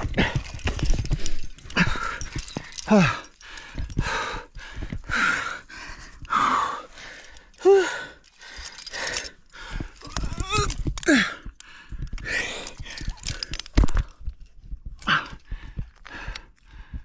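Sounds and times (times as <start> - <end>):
person breathing hard: 0.0 - 17.0
person groaning with effort: 2.9 - 3.3, 10.0 - 11.5.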